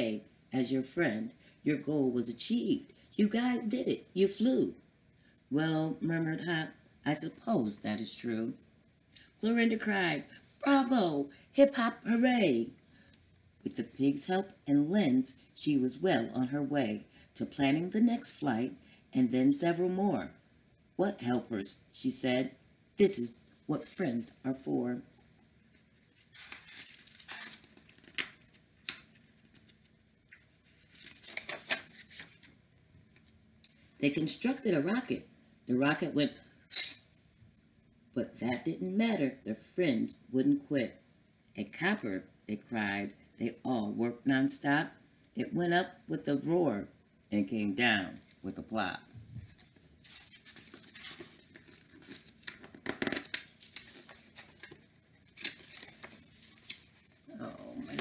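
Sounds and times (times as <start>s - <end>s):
book pages rustling: 25.7s - 33.4s, 49.4s - 58.0s
paper snaps: 27.6s - 30.5s.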